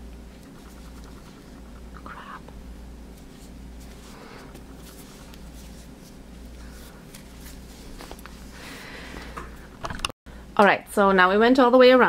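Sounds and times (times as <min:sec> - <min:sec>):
steady low hum: 0:00.0 - 0:11.4
hands rustling fabric: 0:03.0 - 0:09.7.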